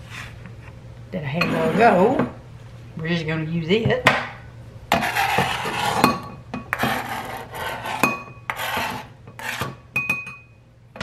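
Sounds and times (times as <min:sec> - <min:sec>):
knife scraping cutting board: 0:00.0 - 0:00.4, 0:01.4 - 0:02.1, 0:04.9 - 0:09.8.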